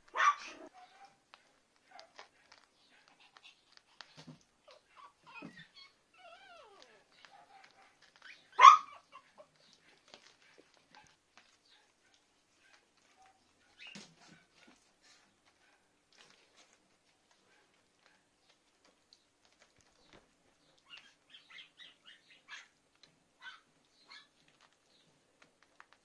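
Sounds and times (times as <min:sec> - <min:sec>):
paws scratching: 0:00.0 - 0:26.0
puppy barking: 0:00.1 - 0:03.4, 0:06.5 - 0:14.8, 0:20.9 - 0:22.8, 0:23.4 - 0:24.3
puppy whimpering: 0:03.0 - 0:10.7, 0:20.8 - 0:22.7.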